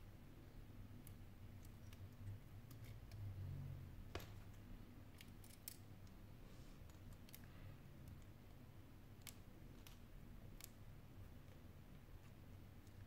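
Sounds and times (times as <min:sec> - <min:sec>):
small clicks of phone parts: 0:04.2 - 0:06.2.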